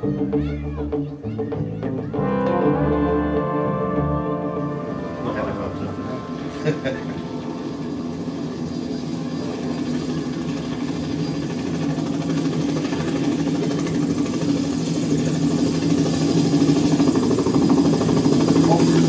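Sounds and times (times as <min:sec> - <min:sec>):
low drone from loudspeakers: 0:00.0 - 0:09.8.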